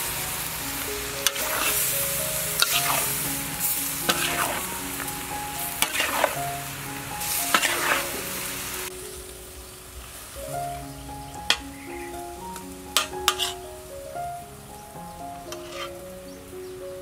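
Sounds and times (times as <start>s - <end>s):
vegetables sizzling in a wok: 0.0s - 16.8s
light background music: 0.0s - 17.0s
spatula clinking against pan: 13.0s - 13.6s.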